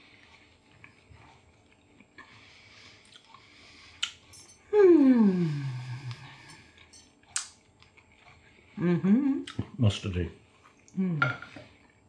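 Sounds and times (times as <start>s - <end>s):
person humming mmm: 4.7s - 6.6s, 8.8s - 9.6s, 10.9s - 11.4s.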